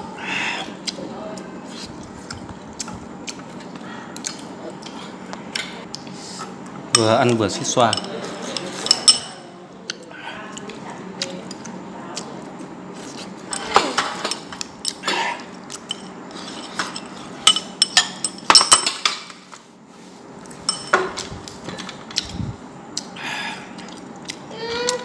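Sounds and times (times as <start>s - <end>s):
chopsticks clinking on bowls: 6.9s - 9.4s, 13.5s - 15.1s, 15.7s - 19.4s, 20.6s - 21.2s.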